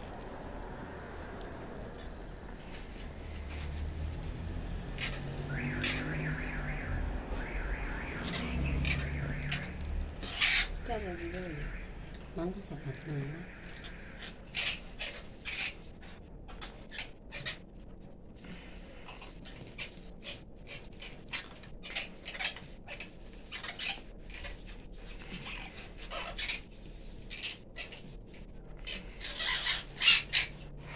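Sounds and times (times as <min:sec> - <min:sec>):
bird chip calls: 0:28.8 - 0:30.8.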